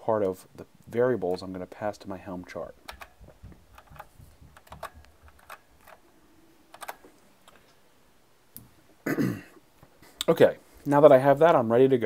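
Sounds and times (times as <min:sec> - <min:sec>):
faint keyboard keystrokes: 0:02.8 - 0:06.0, 0:06.7 - 0:07.7.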